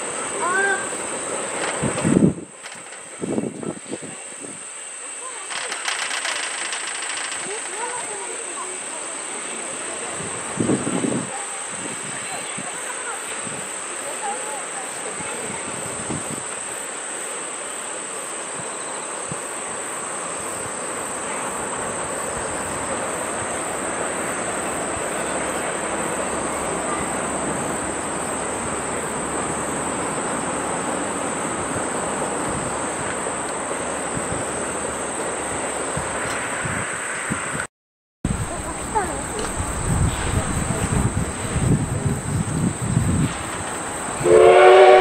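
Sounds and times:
high insect trill: 0:00.0 - 0:37.6, 0:38.3 - 0:45.0
train rumbling on rails: 0:00.0 - 0:37.7, 0:38.3 - 0:45.0.

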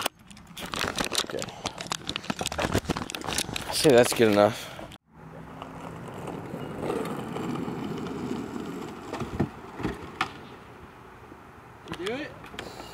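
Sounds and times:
street traffic rushing: 0:04.5 - 0:12.9.

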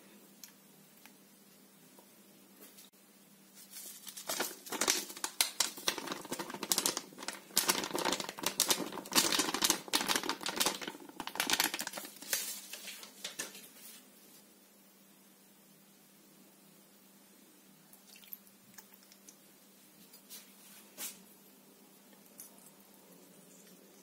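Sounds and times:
packet crinkling: 0:03.6 - 0:13.6.

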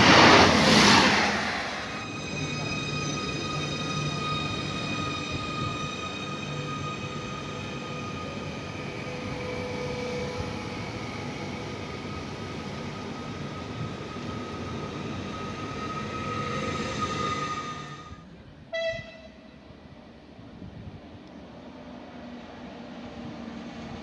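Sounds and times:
train rolling rumble: 0:00.0 - 0:18.7
electric train whine: 0:00.0 - 0:18.9
train horn toot: 0:17.9 - 0:19.6.

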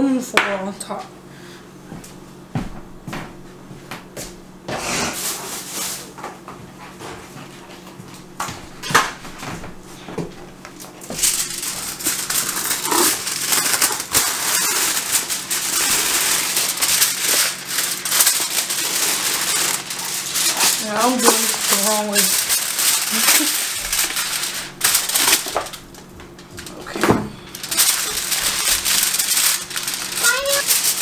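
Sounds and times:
aluminium foil crinkling: 0:10.7 - 0:31.0.

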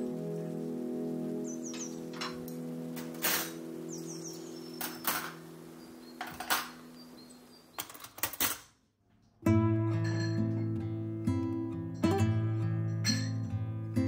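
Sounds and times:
soft background music: 0:00.0 - 0:07.7, 0:09.4 - 0:14.0
cutlery clinking: 0:03.0 - 0:03.6, 0:04.8 - 0:05.4, 0:06.2 - 0:06.8.

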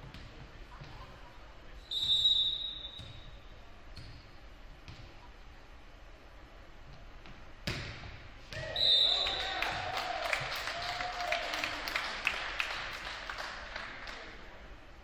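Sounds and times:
referee whistle blast: 0:01.9 - 0:03.2, 0:08.7 - 0:09.4.

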